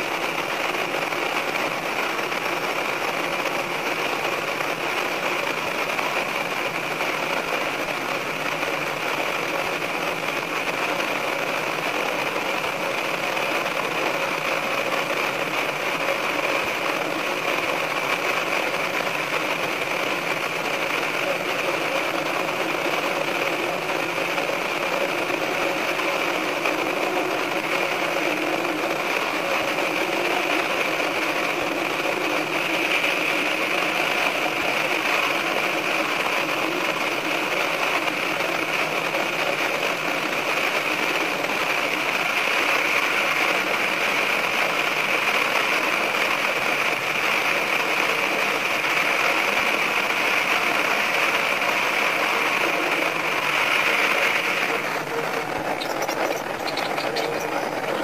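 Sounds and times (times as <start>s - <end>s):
train running in tunnel: 0.0s - 58.0s.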